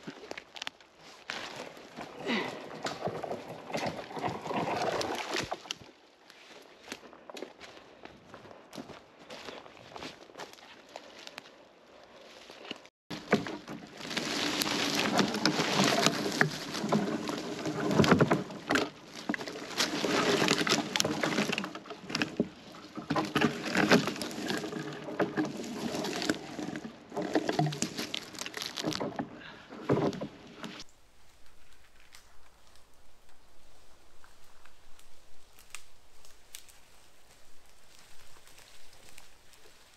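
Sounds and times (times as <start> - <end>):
footsteps rustling through needles: 6.1 - 26.6, 27.4 - 29.0, 30.8 - 39.9
twigs and branches snapping: 12.7 - 24.8, 27.2 - 29.2, 34.2 - 39.8.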